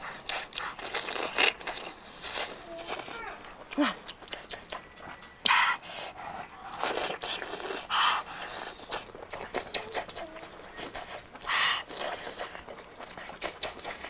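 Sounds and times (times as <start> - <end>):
wet chewing: 0.0 - 14.0
loud slurping: 5.4 - 14.0.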